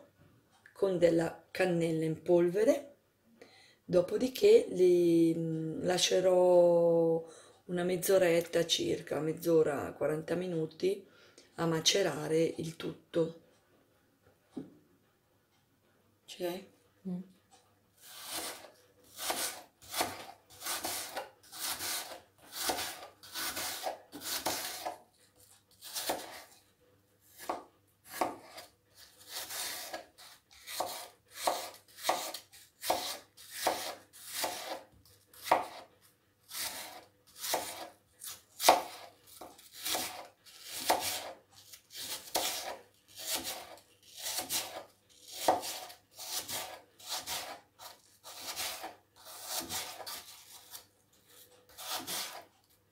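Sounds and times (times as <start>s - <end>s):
knife slicing apple on board: 18.0s - 25.0s, 25.8s - 26.6s, 27.3s - 35.9s, 36.5s - 52.5s.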